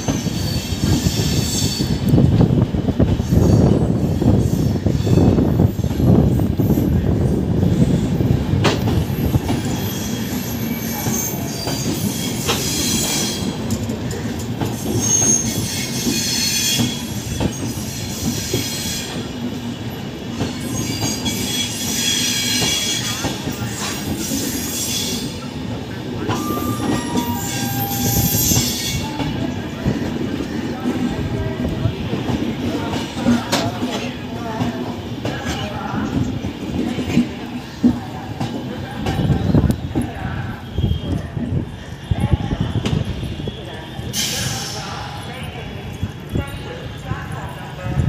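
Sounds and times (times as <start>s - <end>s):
train rumbling: 0.0s - 48.0s
high-pitched wheel squeal: 0.1s - 2.0s, 14.8s - 19.2s, 26.2s - 29.2s.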